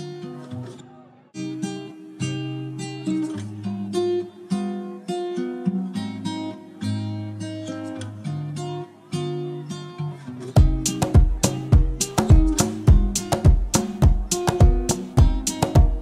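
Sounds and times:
strummed acoustic guitar: 0:00.0 - 0:16.0.

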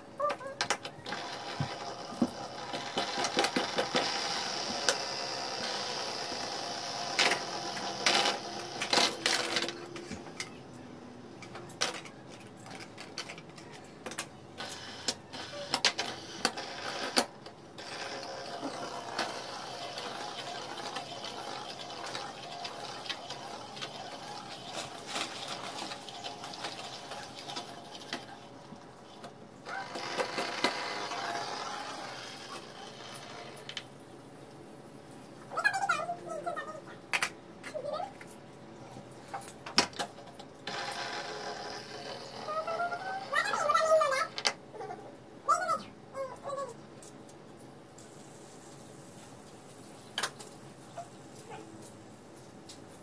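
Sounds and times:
fidget spinners whirring: 0:00.1 - 0:10.6, 0:11.4 - 0:33.9, 0:40.6 - 0:47.1
fingers clicking and knocking spinners: 0:00.2 - 0:10.6, 0:11.4 - 0:33.9, 0:40.7 - 0:44.6.

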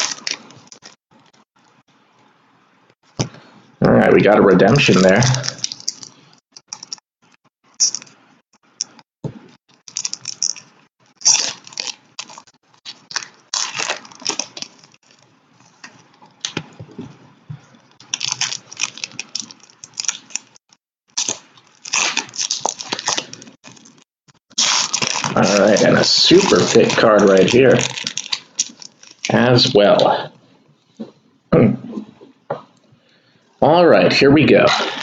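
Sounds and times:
foil wrappers crinkling and tearing: 0:00.0 - 0:01.0, 0:04.8 - 0:07.0, 0:09.8 - 0:16.7, 0:17.8 - 0:30.1.

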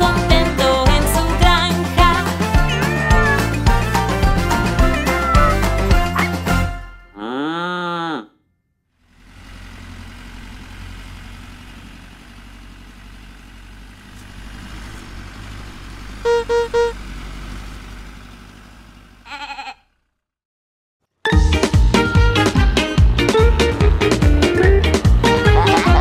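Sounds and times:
cartoon tractor engine running: 0:00.0 - 0:06.8, 0:09.0 - 0:20.3, 0:21.4 - 0:26.0
cartoon cow mooing: 0:07.1 - 0:08.4, 0:19.2 - 0:20.0, 0:25.2 - 0:26.0
short horn beeps: 0:16.2 - 0:17.0
brief bleat: 0:19.2 - 0:19.9.

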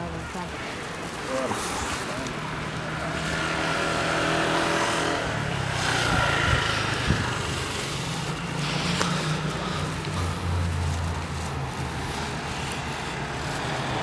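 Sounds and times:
road noise: 0:00.0 - 0:14.0
vehicle engine humming: 0:00.0 - 0:14.0.

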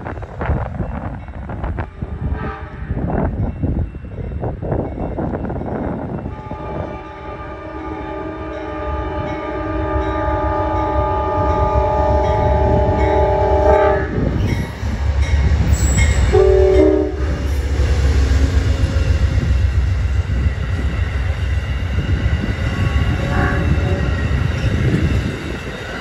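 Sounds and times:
train horn chime: 0:06.1 - 0:14.2, 0:15.9 - 0:17.9, 0:22.7 - 0:26.0
train coaches clattering on rails: 0:09.1 - 0:26.0.

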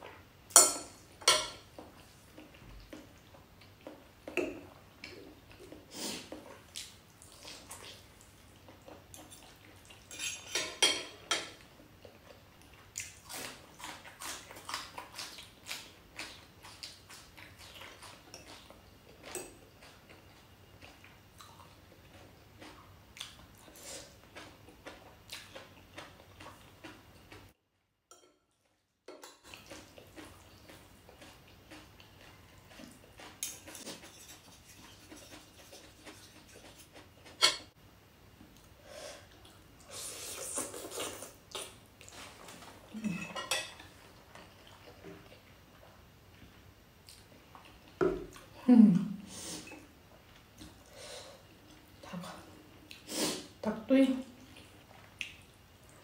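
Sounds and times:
person chewing: 0:12.0 - 0:27.5, 0:29.4 - 0:37.6, 0:38.6 - 0:46.0.

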